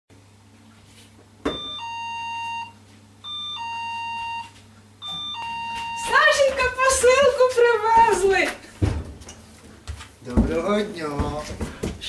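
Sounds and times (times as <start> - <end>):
electronic doorbell two-note chime: 1.5 - 6.1.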